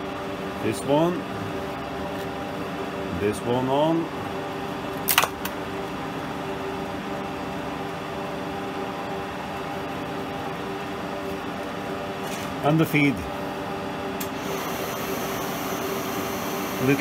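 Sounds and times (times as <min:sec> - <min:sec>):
milling machine humming: 0:13.2 - 0:17.0.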